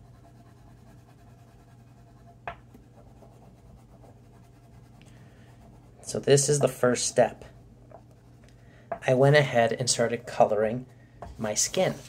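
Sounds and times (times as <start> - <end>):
oil pastel rubbing on paper: 0.0 - 6.0, 11.4 - 12.0.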